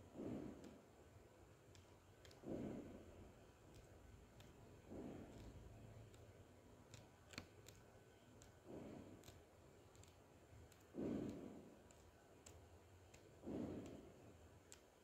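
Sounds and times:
light paper clicks: 3.6s - 14.0s.

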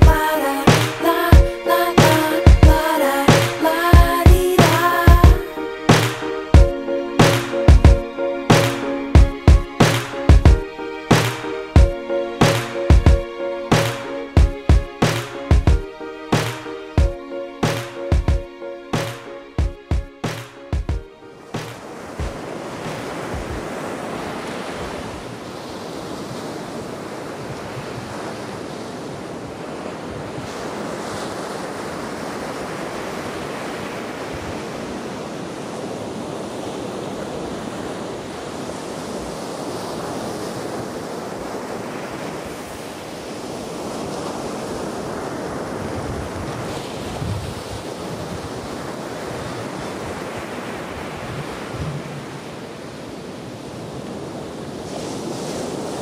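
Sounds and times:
waves breaking on beach: 0.0s - 18.2s, 20.2s - 56.0s
wind buffeting microphone: 21.9s - 32.4s, 43.6s - 56.0s.

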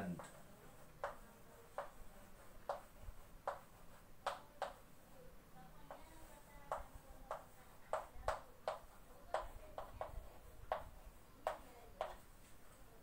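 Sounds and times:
chalk tapping on chalkboard: 0.2s - 5.0s, 5.8s - 12.7s.

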